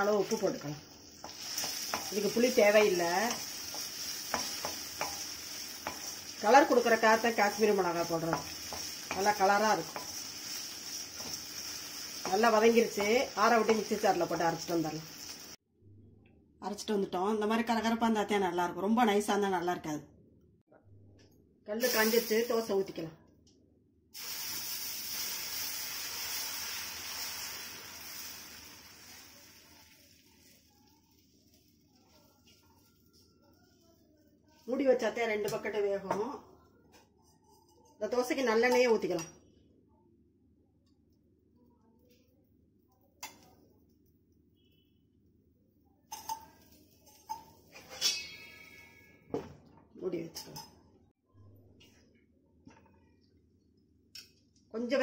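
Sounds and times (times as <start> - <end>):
batter sizzling on a griddle: 0.0 - 15.6, 24.2 - 34.1
metal kitchenware clinking: 46.1 - 49.4, 50.3 - 50.9.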